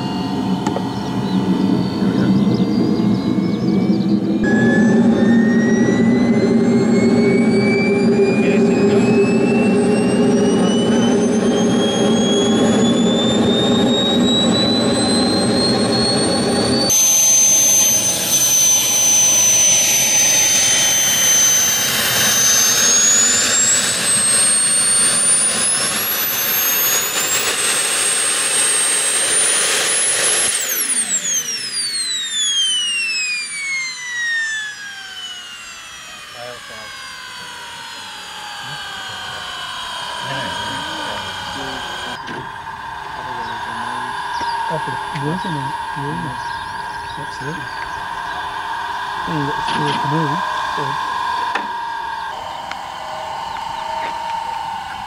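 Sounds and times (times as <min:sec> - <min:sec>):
low rumble: 0:00.0 - 0:26.9
model jet turbine whine: 0:00.0 - 0:55.0.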